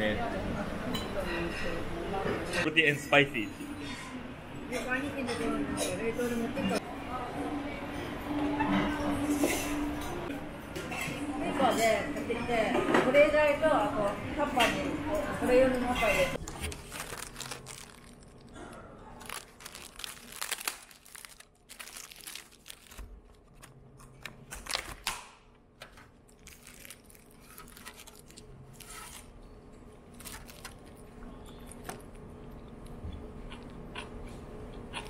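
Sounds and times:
plastic wrapper crinkling and tearing: 16.4s - 25.2s, 26.2s - 29.3s, 30.1s - 32.2s.

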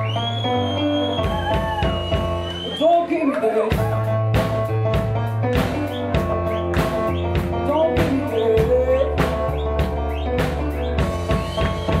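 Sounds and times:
drum kit beat: 0.0s - 2.9s, 3.7s - 12.0s
woman singing: 7.7s - 9.3s.

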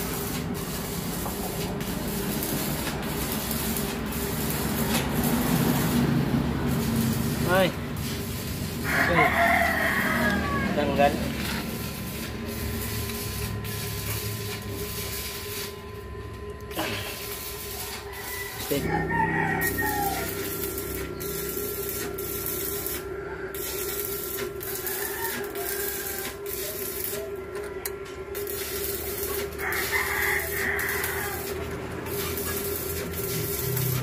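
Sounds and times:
steady hum: 0.0s - 9.2s, 10.0s - 34.0s
rooster crowing: 8.7s - 11.4s, 17.6s - 34.0s.

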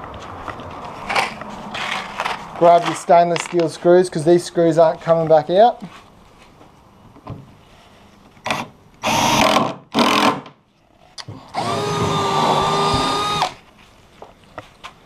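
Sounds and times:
cordless drill driving screws: 8.5s - 10.4s, 11.5s - 13.6s.

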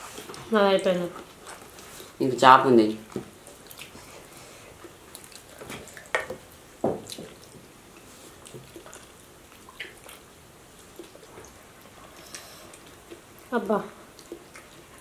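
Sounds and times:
lip smacks and chewing: 3.4s - 13.5s, 14.1s - 15.0s.

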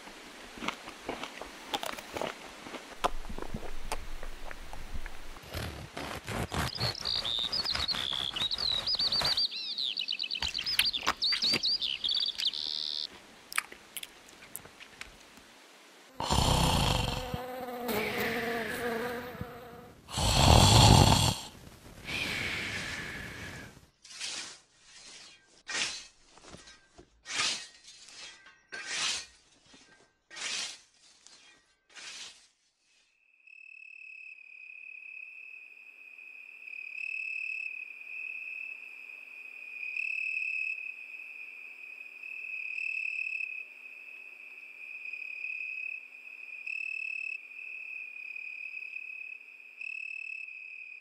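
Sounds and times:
short bird chirps: 6.5s - 13.1s
warbling birdsong: 6.5s - 13.1s.

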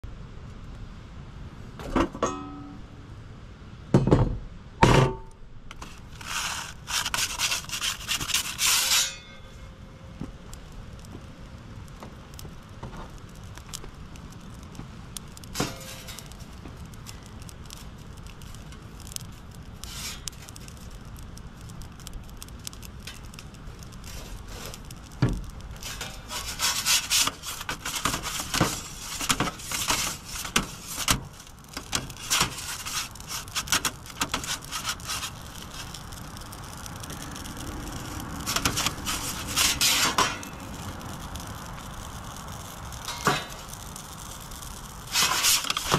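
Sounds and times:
metal peel scraping stone floor: 5.7s - 9.7s, 15.5s - 16.5s, 19.8s - 20.6s, 24.0s - 24.9s, 25.7s - 36.1s, 38.2s - 40.7s, 43.0s - 43.8s, 45.1s - 45.9s
low rush: 13.4s - 45.8s.

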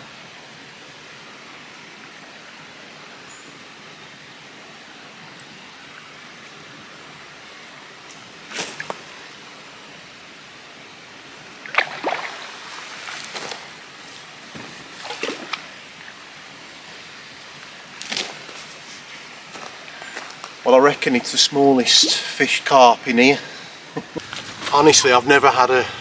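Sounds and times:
fish splashing at water surface: 11.6s - 13.8s, 15.0s - 15.8s.

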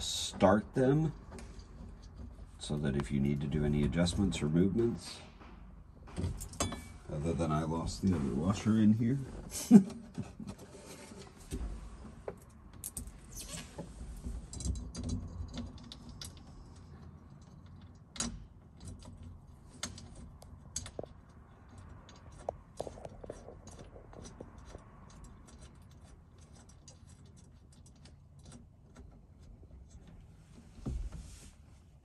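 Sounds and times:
clicks and knocks on metal: 5.4s - 7.0s.

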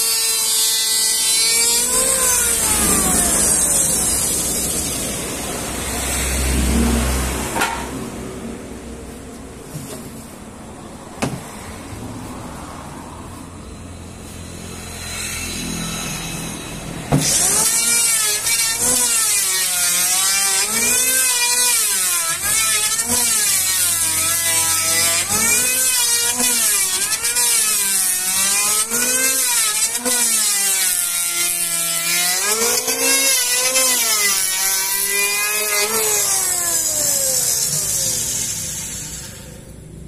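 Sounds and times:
electric planer motor whine: 0.0s - 6.7s, 17.2s - 39.8s.

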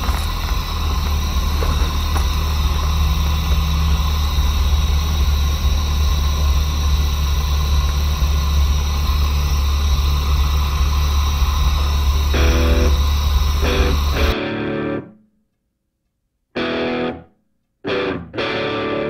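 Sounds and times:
car engine idling: 0.0s - 14.4s.

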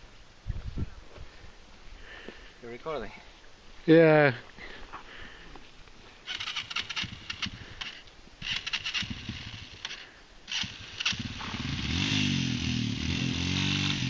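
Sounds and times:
scattered clicks and rustles: 6.3s - 11.2s
motorcycle engines revving: 6.3s - 14.0s.

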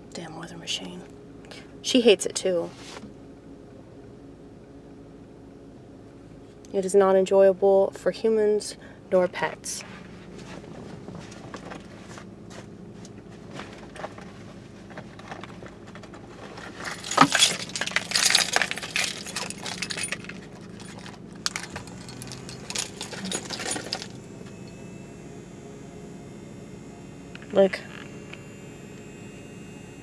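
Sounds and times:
faint steady hum: 0.0s - 30.0s
metallic jangling and clattering: 16.1s - 24.2s.

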